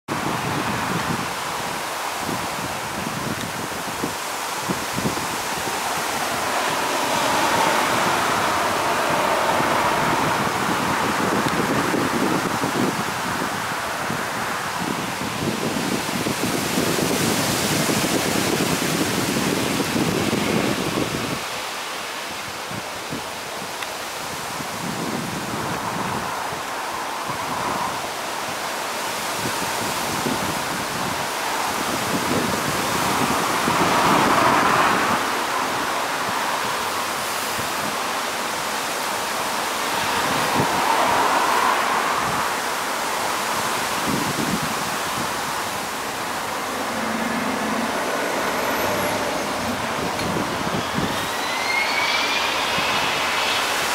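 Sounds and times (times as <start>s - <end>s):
jet engines rushing: 0.4s - 21.4s, 30.6s - 53.9s
jet engines running: 3.4s - 12.6s, 44.4s - 53.9s.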